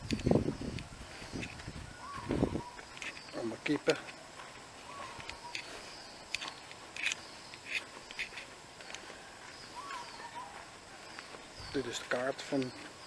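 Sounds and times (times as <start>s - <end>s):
footsteps on concrete: 0.0s - 13.0s
bird call: 1.9s - 3.4s, 4.8s - 8.4s, 9.0s - 12.0s.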